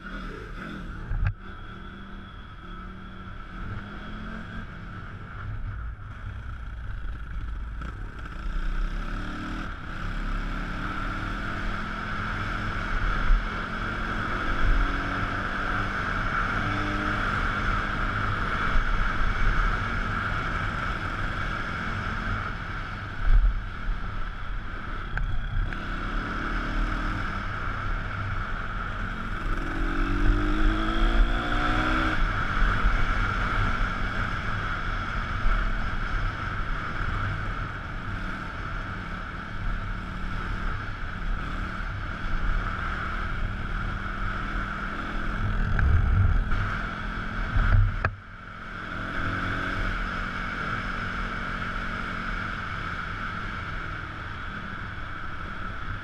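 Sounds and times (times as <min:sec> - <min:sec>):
wind rushing over microphone: 0:41.4 - 0:48.2.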